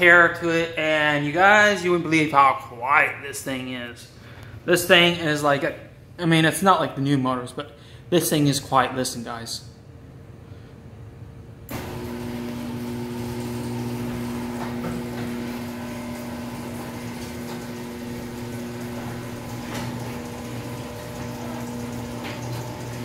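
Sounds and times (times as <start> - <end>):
garage door opener humming: 11.7 - 23.0.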